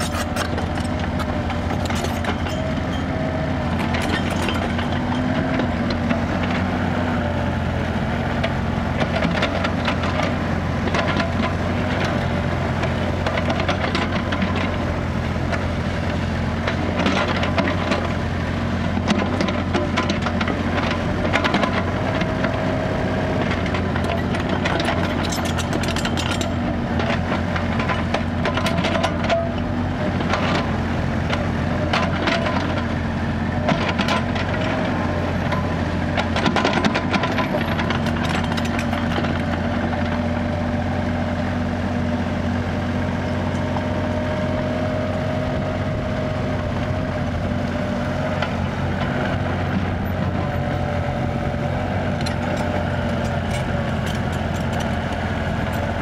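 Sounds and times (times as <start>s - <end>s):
bucket scraping dirt: 0.0s - 3.0s
excavator diesel engine running: 0.0s - 56.0s
knocks and clatter: 52.2s - 56.0s.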